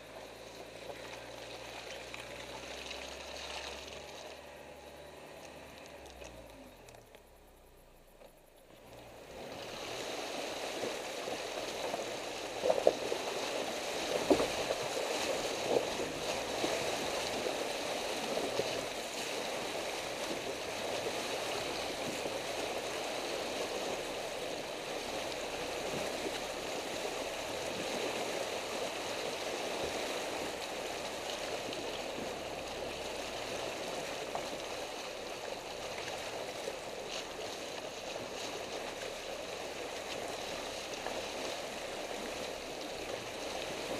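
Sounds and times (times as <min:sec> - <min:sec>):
water splashing around tyre: 0:00.0 - 0:43.9.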